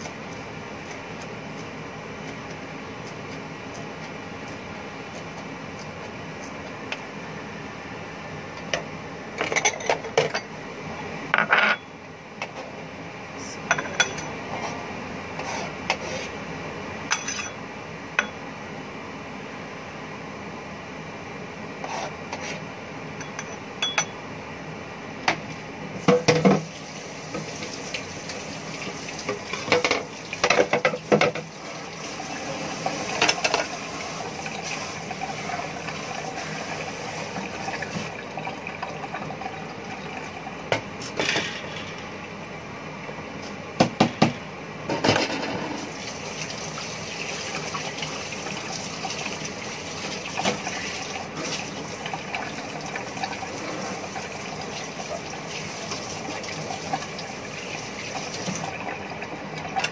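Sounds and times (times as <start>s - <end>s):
dishes and utensils clinking: 9.4s - 10.6s, 13.7s - 14.8s, 17.1s - 17.6s, 23.2s - 24.2s
water running at sink: 26.0s - 40.9s, 45.8s - 59.9s.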